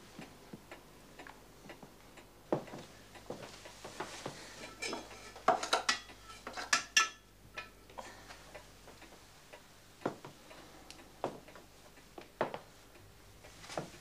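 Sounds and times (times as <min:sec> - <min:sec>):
metal fire tools clinking: 0:04.5 - 0:07.7.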